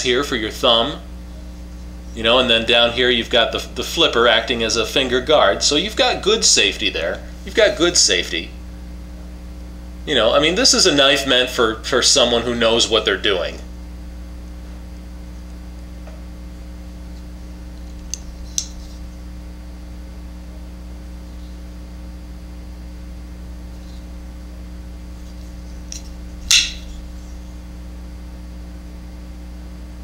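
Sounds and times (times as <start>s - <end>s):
steady low hum: 0.0s - 30.0s
folding knife handling clicks: 18.0s - 18.8s.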